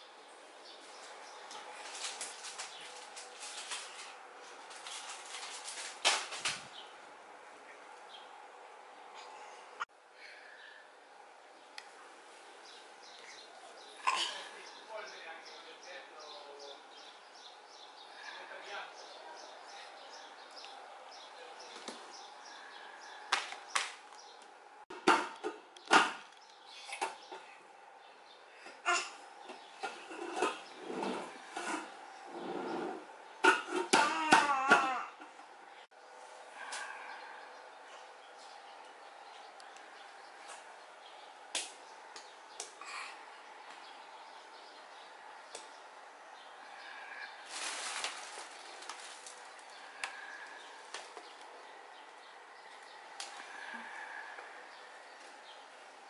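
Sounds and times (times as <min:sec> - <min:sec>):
plastic packets crinkling: 0:01.5 - 0:06.6, 0:47.4 - 0:50.2.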